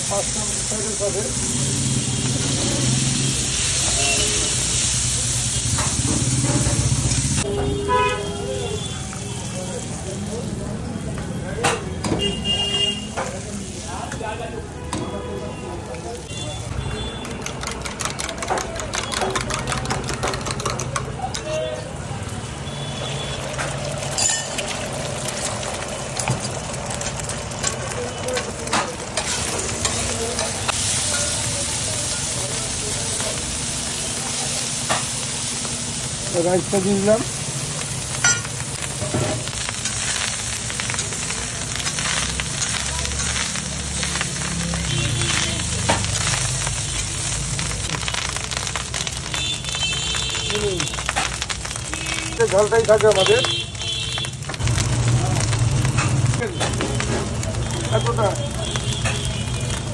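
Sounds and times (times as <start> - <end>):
vegetables sizzling on a griddle: 0.0 - 59.9
metal spatula stirring: 17.0 - 21.5.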